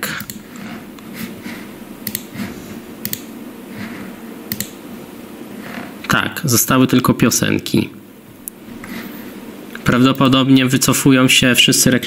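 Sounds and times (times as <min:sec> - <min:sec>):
computer mouse clicks: 0:00.0 - 0:01.1, 0:02.0 - 0:02.4, 0:03.0 - 0:03.3, 0:04.5 - 0:04.8
steady low hum: 0:00.0 - 0:12.0.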